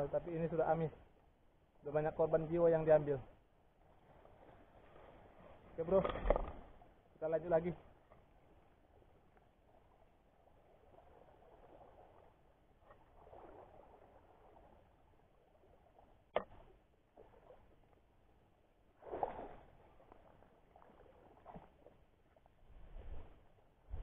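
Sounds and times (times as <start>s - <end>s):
sea water sloshing around wading: 7.8s - 24.0s.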